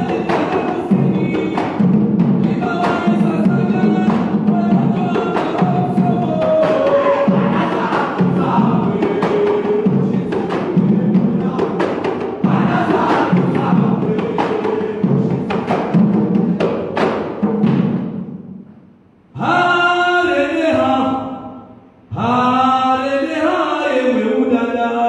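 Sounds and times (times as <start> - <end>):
drums beaten fast: 0.0 - 18.5
voices chanting: 5.6 - 11.6.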